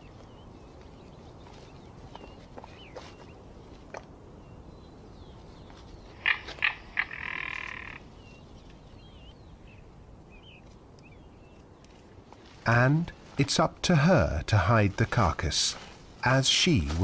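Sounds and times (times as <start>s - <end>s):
steady outdoor hiss: 0.0s - 17.0s
bird harsh calls and rattle: 5.6s - 9.0s.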